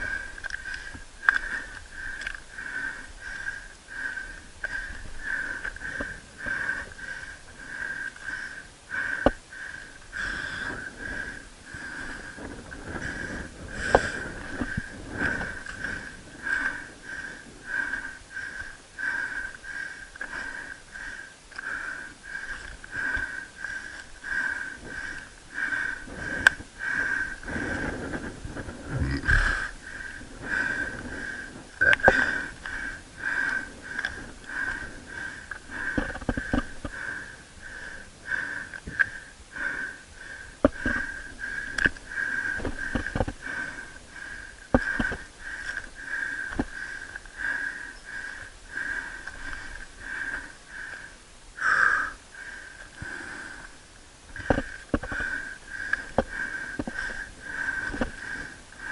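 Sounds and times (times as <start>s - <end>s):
heavy rhythmic breathing: 0.0s - 58.9s.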